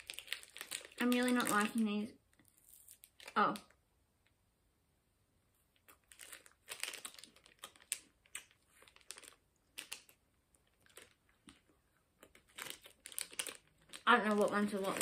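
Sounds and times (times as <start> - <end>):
plastic wrapper crinkling: 0.0 - 3.8, 5.8 - 15.0
wafer snack crunching: 5.8 - 15.0.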